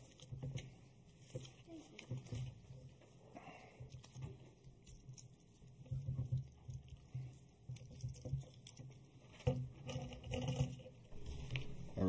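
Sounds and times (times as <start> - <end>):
paper rustling: 0.0 - 3.2.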